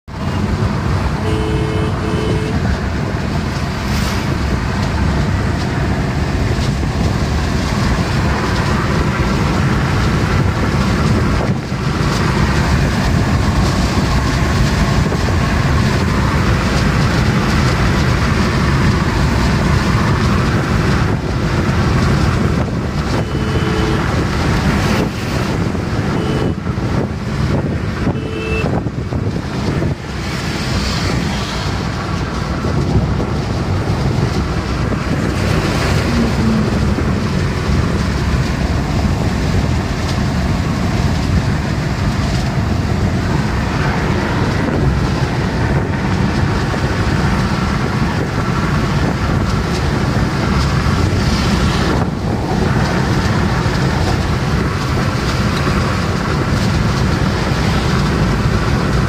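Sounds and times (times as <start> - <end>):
car cabin road and engine noise: 0.0 - 59.0
car horn toots: 1.2 - 2.7, 23.1 - 24.3, 26.0 - 26.6, 28.0 - 28.8.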